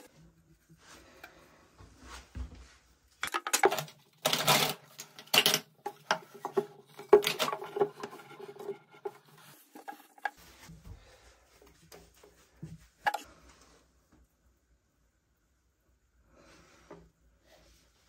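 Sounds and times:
plastic pipe fittings scraping: 0:03.2 - 0:10.7.

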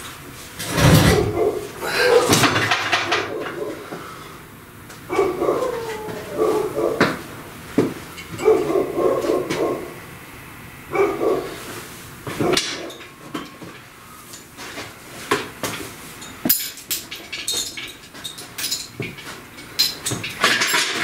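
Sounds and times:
dog barking: 0:01.1 - 0:02.4, 0:03.1 - 0:03.8, 0:05.1 - 0:07.2, 0:08.4 - 0:10.0, 0:10.9 - 0:11.6, 0:12.4 - 0:13.0.

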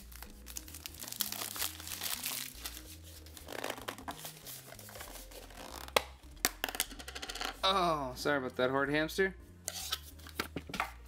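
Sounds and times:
plastic shrink-wrap crinkling: 0:00.0 - 0:05.6.

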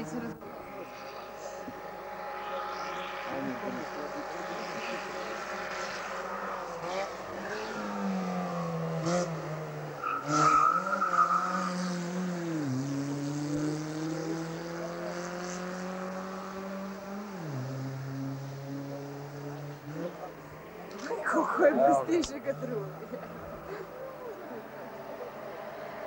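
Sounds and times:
race car engine revving: 0:00.0 - 0:26.0
tyres squealing: 0:09.8 - 0:11.9.

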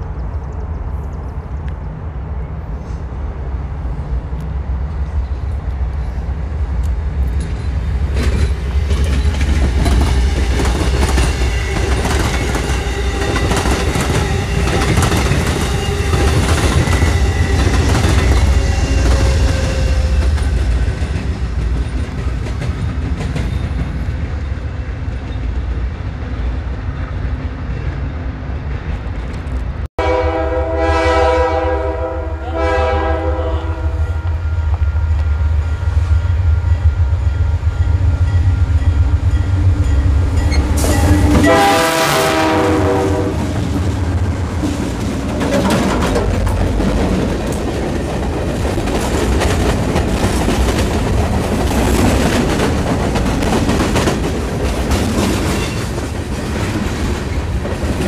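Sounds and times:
train rumble: 0:00.0 - 0:58.0
wheels clicking over rail joints: 0:44.6 - 0:58.0.

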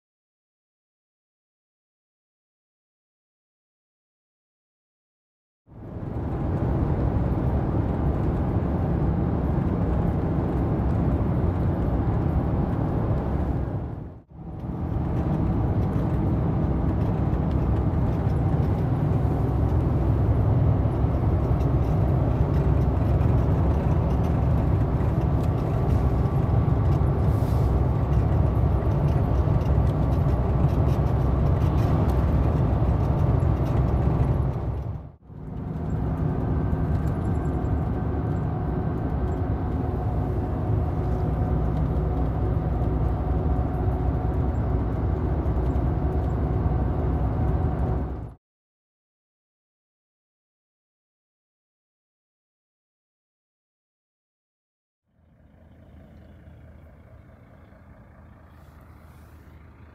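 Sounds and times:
truck engine and road noise: 0:05.7 - 0:48.4, 0:55.1 - 0:59.9.

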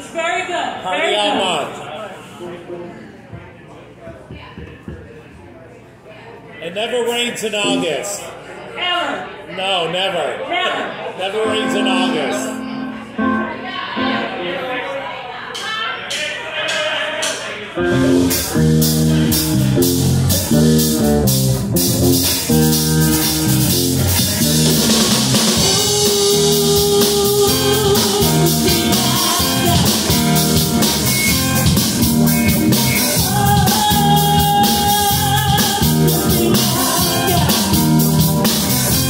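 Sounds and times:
live rock band playing: 0:07.6 - 0:08.2, 0:11.4 - 0:14.4, 0:17.8 - 0:39.0
woman singing: 0:25.6 - 0:30.2, 0:33.2 - 0:37.8.

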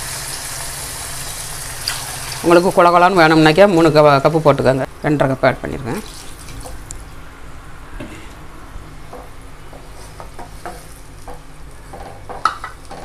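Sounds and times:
vegetables sizzling in a pan: 0:00.0 - 0:02.4.

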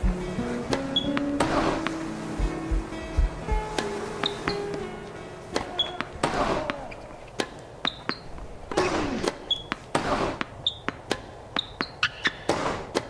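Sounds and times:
tennis ball hit by rackets: 0:00.0 - 0:13.0
sneakers squeaking on court: 0:00.6 - 0:13.0
players grunting: 0:04.5 - 0:07.4, 0:08.6 - 0:09.4.

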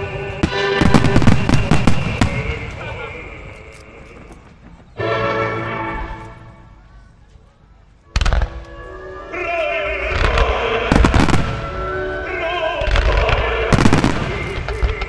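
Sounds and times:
heavy firework booms: 0:00.0 - 0:02.8, 0:10.1 - 0:11.8, 0:12.8 - 0:15.0
fireworks launching and crackling: 0:00.0 - 0:03.2, 0:08.2 - 0:08.6, 0:10.0 - 0:11.7, 0:12.8 - 0:15.0
music playing: 0:00.0 - 0:04.4, 0:05.0 - 0:06.8, 0:08.1 - 0:15.0.

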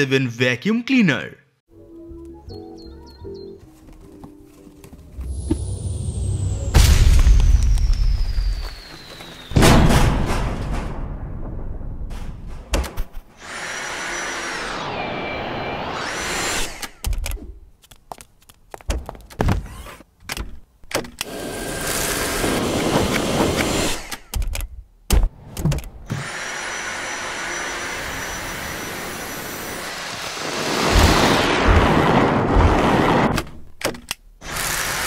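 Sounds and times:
clicks and thunks: 0:12.1 - 0:13.3, 0:24.3 - 0:26.0
vacuum cleaner motor whining: 0:13.4 - 0:16.9, 0:26.1 - 0:31.8.

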